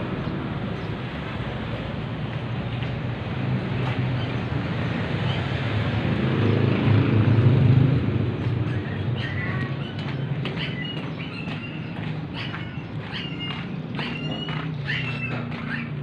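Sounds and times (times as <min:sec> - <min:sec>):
vehicle engine driving past: 0:03.2 - 0:11.4.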